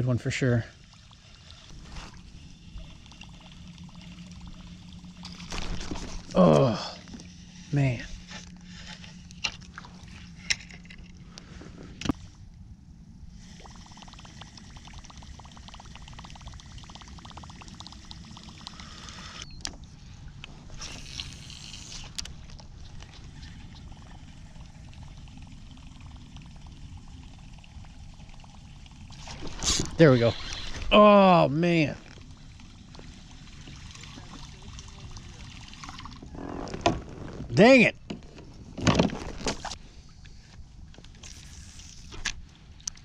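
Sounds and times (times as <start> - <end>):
water lapping against kayak hull: 19.7 - 31.0, 31.8 - 42.8.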